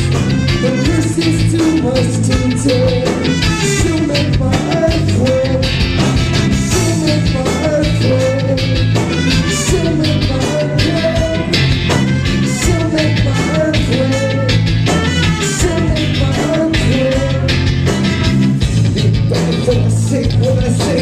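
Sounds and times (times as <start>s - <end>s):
trumpet line: 0.0s - 4.4s, 5.9s - 17.2s
live reggae rock band: 0.0s - 21.0s.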